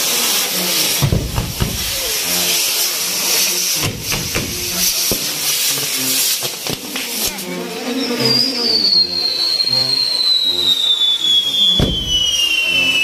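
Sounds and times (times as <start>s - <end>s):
firework bang: 1.0s - 2.3s, 3.8s - 5.4s, 11.8s - 12.6s
firework whistle falling in pitch: 7.7s - 13.0s.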